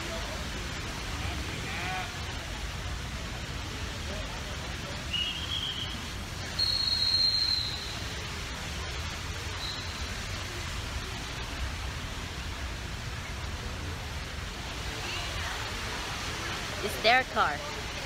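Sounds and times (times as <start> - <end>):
traffic hiss and rumble: 0.0 - 18.0
high whistle-like tone: 5.1 - 6.0, 6.6 - 8.1, 9.6 - 10.1.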